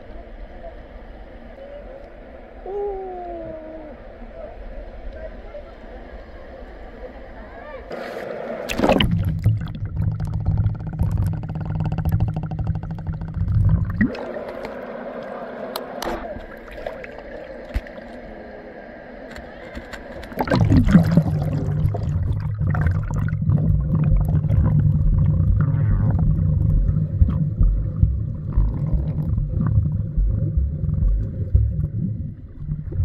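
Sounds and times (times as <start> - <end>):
muffled underwater river rumble: 0.0 - 33.0
water slosh: 7.9 - 18.4, 19.4 - 33.0
lapping water: 7.9 - 33.0.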